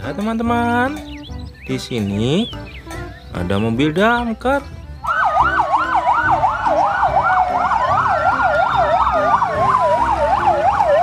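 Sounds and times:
fire engine siren wail: 5.0s - 11.0s
fire engine siren yelp: 5.0s - 11.0s.

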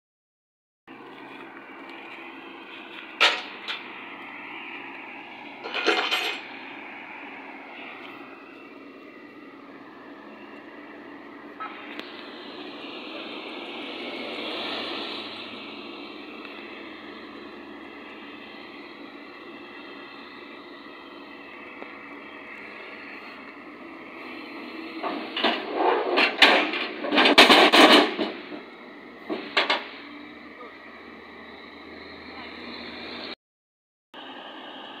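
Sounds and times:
steel ramps banging onto road: 3.1s - 3.9s, 5.6s - 6.5s, 25.0s - 30.1s
metal clanking: 5.6s - 6.5s
metal rattling clatter: 5.6s - 6.5s, 25.3s - 28.6s.

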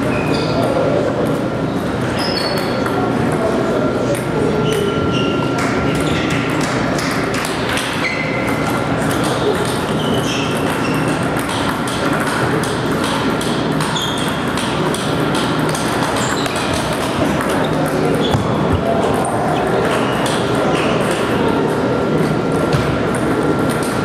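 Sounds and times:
hubbub of indistinct voices: 0.0s - 24.0s
table tennis balls clicking: 5.6s - 21.4s.

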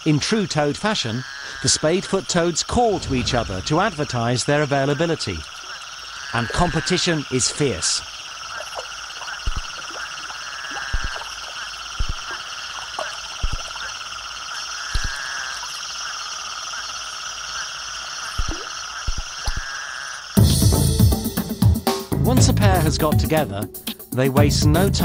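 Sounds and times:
chorus of toads calling: 0.0s - 20.5s
short low thumps: 2.8s - 4.1s.

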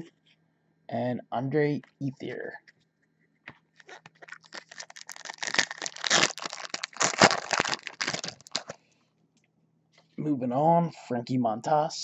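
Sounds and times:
foil wrapper tearing and crinkling: 3.8s - 8.8s.

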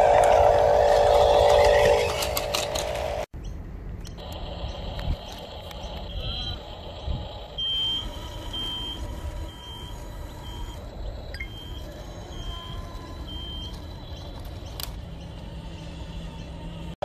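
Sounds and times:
short high alarm beeps: 7.6s - 13.7s.

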